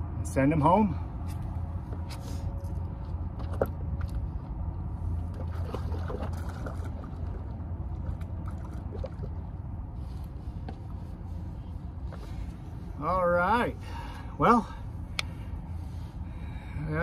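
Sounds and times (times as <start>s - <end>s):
small splashes: 5.2s - 9.6s
water lapping against rocks: 5.2s - 10.2s.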